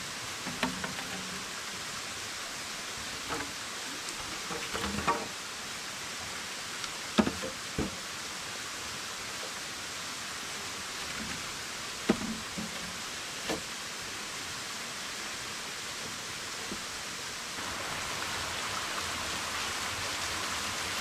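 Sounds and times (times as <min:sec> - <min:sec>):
rushing water hiss: 0:00.0 - 0:21.0
bamboo poles knocking: 0:00.4 - 0:01.5, 0:03.3 - 0:03.6, 0:04.2 - 0:05.3, 0:07.2 - 0:08.0, 0:12.1 - 0:13.7.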